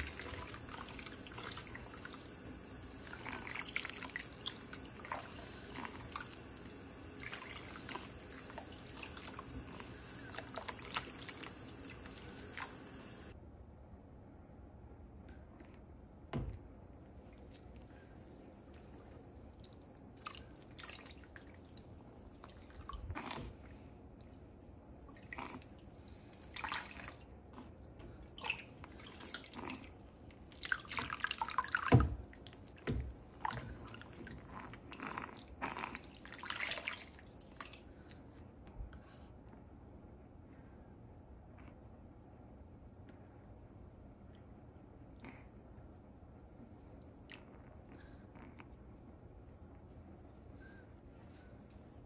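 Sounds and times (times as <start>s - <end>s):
water splashing and trickling: 0.0s - 13.4s, 17.3s - 23.2s, 25.1s - 34.9s, 36.0s - 38.1s.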